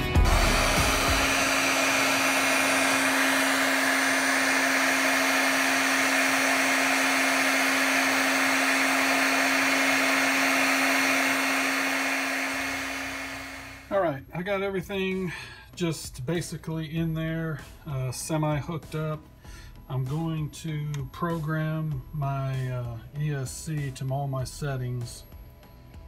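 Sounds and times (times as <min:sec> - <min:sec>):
heat gun blowing air: 0:00.0 - 0:13.9.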